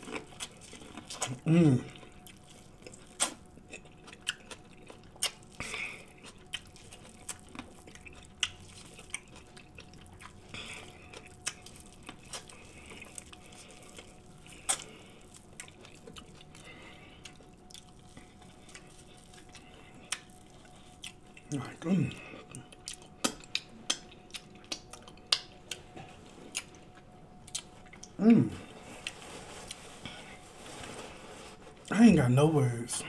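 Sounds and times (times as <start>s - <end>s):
man chewing corn: 0.0s - 31.9s
wet mouth smacks: 23.2s - 25.5s.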